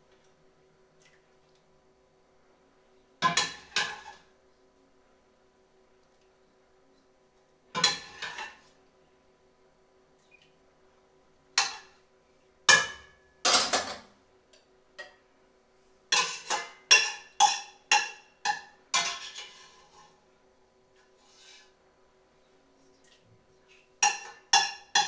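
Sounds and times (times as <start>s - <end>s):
metal spoon clinking on dishes: 16.1s - 19.6s, 24.0s - 25.0s.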